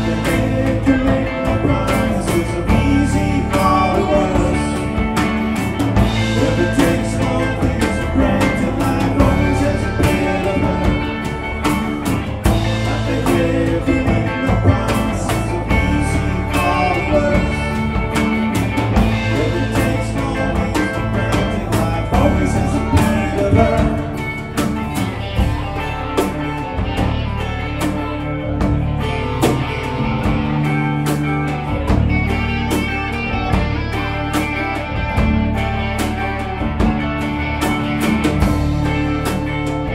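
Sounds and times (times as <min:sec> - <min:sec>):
person singing: 0:00.0 - 0:27.6
acoustic guitar: 0:00.0 - 0:39.9
bass guitar: 0:00.0 - 0:39.9
drum kit: 0:00.0 - 0:39.9
electric guitars: 0:00.0 - 0:39.9.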